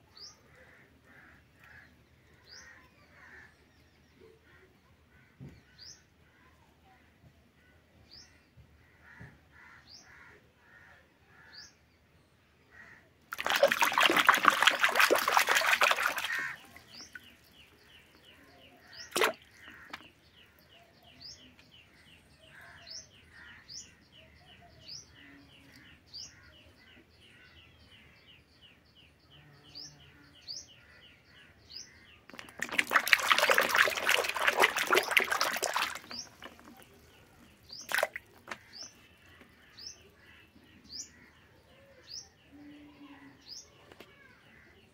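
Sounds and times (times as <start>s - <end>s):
hand splashing water in basin: 13.3s - 17.6s, 19.0s - 20.1s, 32.3s - 38.8s
small birds chirping: 13.3s - 44.9s.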